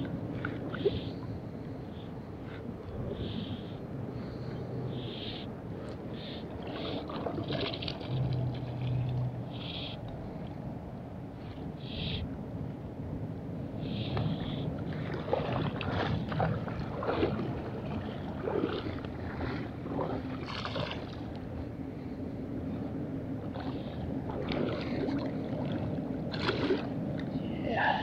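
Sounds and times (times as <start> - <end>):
water sloshing and splashing: 0.0 - 1.8, 5.8 - 10.6, 13.9 - 22.2, 22.8 - 28.0.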